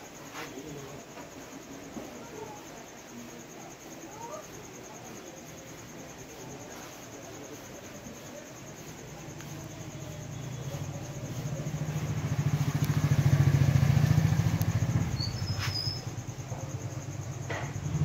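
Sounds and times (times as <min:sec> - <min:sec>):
vehicle engine passing by: 0:10.7 - 0:18.0.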